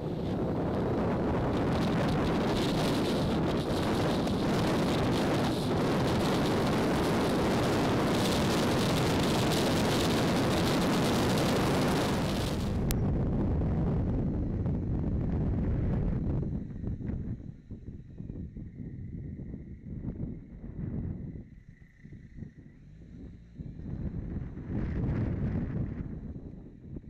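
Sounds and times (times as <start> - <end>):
road noise: 0.0 - 13.0
wind rush on microphone: 0.0 - 27.0.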